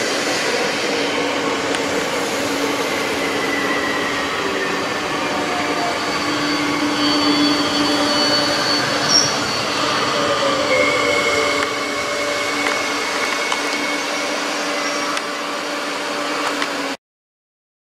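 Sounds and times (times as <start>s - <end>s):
train wheels rushing on rail: 0.0s - 17.0s
whining tones: 0.0s - 17.0s
high squeak: 2.8s - 15.8s.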